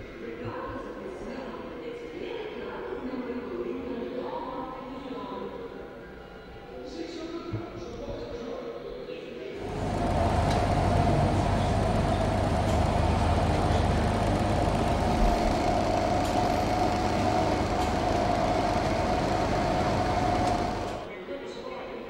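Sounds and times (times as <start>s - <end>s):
machine hum: 9.6s - 21.1s.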